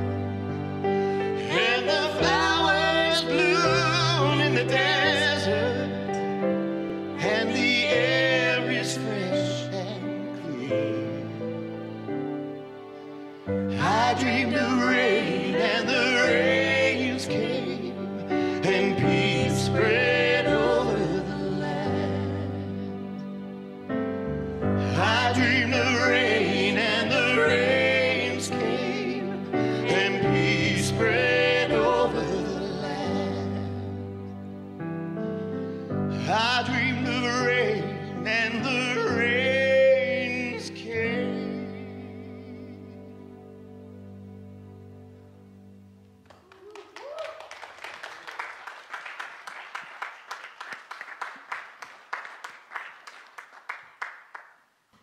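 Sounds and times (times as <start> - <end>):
person singing with vibrato: 1.2 - 6.2, 36.1 - 43.3
audience applauding: 46.2 - 54.7
vocal whoop: 46.3 - 47.8.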